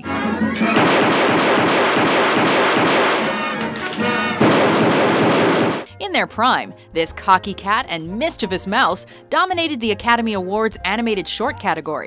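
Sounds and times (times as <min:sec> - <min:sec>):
loud noisy din: 0:00.0 - 0:05.9
orchestral music: 0:00.0 - 0:06.3.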